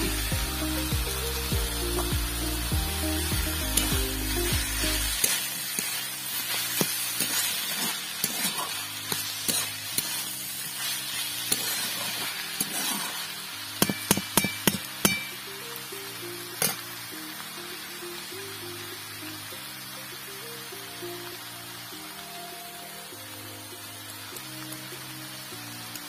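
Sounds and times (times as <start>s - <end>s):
background music: 0.0s - 26.0s
vegetables sizzling in a pan: 0.0s - 26.0s
metal spatula scraping: 4.9s - 15.3s.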